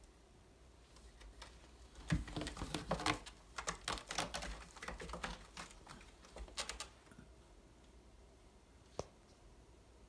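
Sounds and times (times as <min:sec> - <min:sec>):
cat claws scratching rope post: 0:01.1 - 0:07.0.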